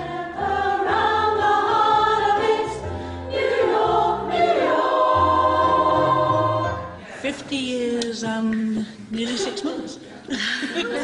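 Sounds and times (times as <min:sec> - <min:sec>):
women's choir singing: 0:00.0 - 0:07.2.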